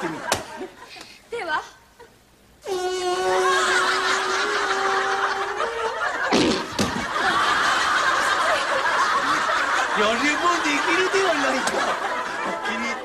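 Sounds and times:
audience laughing: 0.0s - 1.0s, 3.3s - 13.0s
buzzing fart noise: 2.7s - 7.2s.

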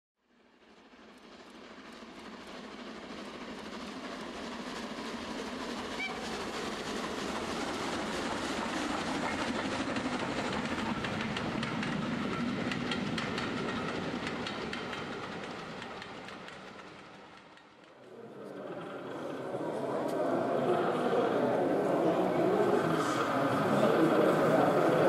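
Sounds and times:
model train running rumble: 0.6s - 25.0s
wheels clicking over rail joints: 8.0s - 21.1s.

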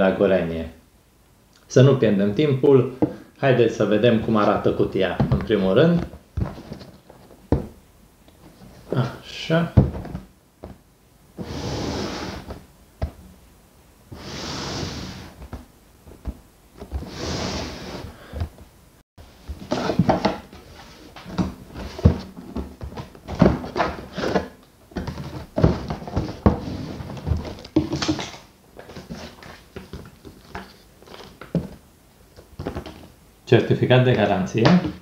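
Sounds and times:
cardboard box knocks and thunks: 9.8s - 10.8s, 21.3s - 28.2s
cardboard sliding scrapes: 11.4s - 12.6s, 14.1s - 15.4s, 17.0s - 18.2s.

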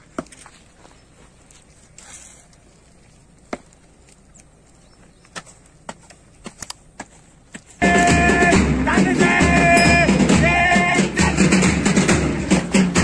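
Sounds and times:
footsteps on concrete: 0.0s - 8.3s.

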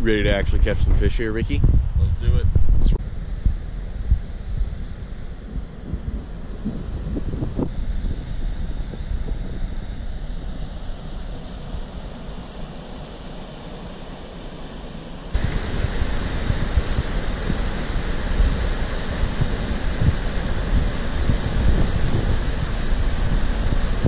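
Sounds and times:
wind rumble on microphone: 0.0s - 12.5s, 15.3s - 24.0s
waterfall and rapids rushing: 11.3s - 24.0s.

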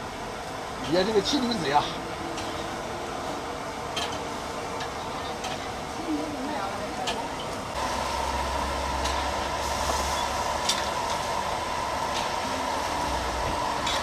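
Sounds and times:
gas burners rushing: 6.7s - 14.0s.

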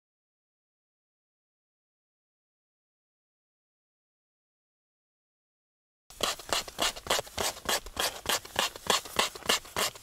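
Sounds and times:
hand tool scraping: 6.1s - 10.0s.

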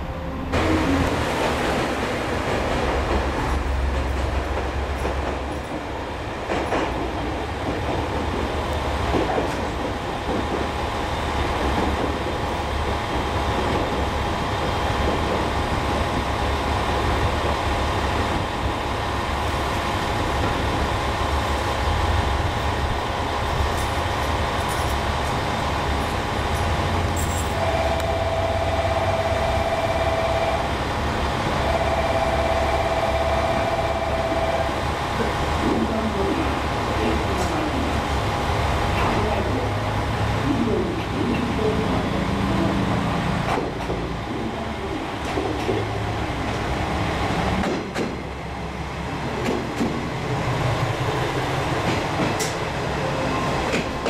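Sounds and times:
steady high tone: 27.5s - 30.7s, 31.6s - 34.8s.

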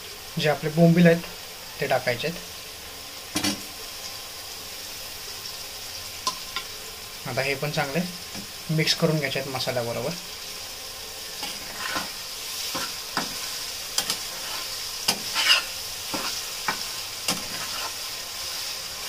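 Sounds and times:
food sizzling in a pan: 0.0s - 19.0s
metal spatula scraping a pan: 11.3s - 19.0s.

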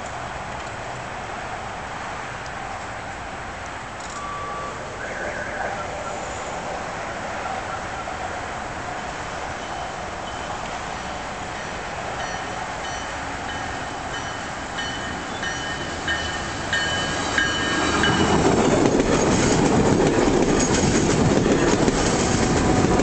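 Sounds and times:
crossing warning bell ringing: 4.0s - 8.2s, 9.2s - 18.4s
train wheels clattering on rails: 10.3s - 23.0s.

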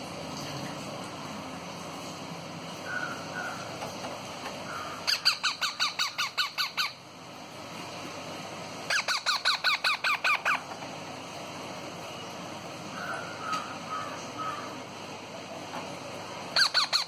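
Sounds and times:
parakeet chicks begging calls: 2.8s - 3.8s, 4.6s - 7.1s, 8.8s - 10.8s, 12.9s - 14.9s, 16.5s - 17.0s.

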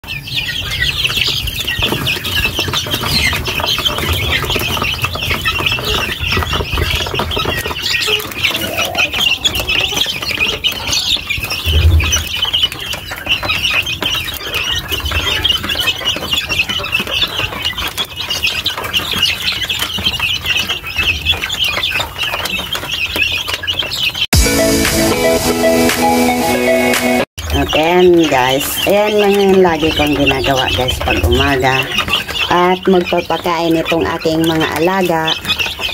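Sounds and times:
chicks peeping shrilly: 0.0s - 35.9s
low bumps: 11.4s - 12.4s, 27.0s - 35.3s.

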